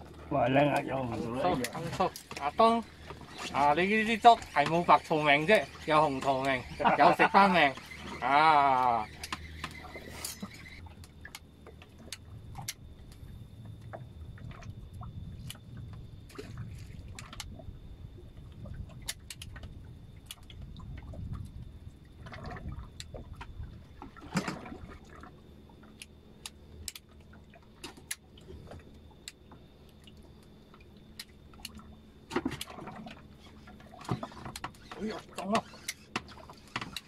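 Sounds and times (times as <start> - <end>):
water lapping against boat hull: 0.0 - 37.0.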